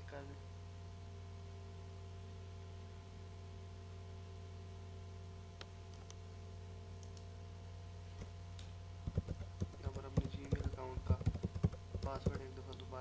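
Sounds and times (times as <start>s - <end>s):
low electrical hum: 0.0s - 13.0s
computer mouse clicking: 5.6s - 6.2s, 7.0s - 7.3s, 9.1s - 12.9s.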